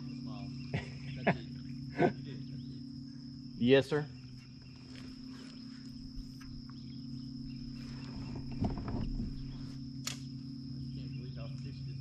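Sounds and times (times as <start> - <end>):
high-pitched insect drone: 0.0 - 12.0
low steady hum: 0.0 - 12.0
rustle: 4.3 - 6.5.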